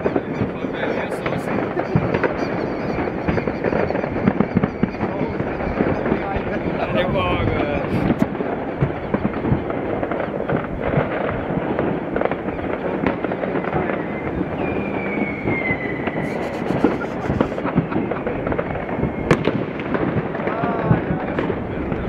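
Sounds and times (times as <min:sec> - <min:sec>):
high firework whistle: 0:00.0 - 0:07.1, 0:12.2 - 0:19.9
fireworks crackling and banging: 0:00.0 - 0:22.0.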